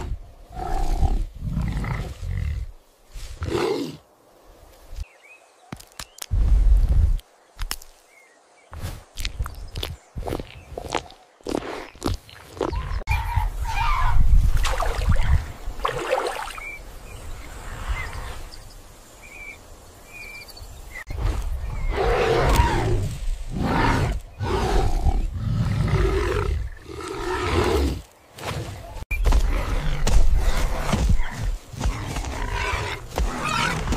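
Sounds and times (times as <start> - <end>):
animal roaring and growling: 21.8 - 28.0.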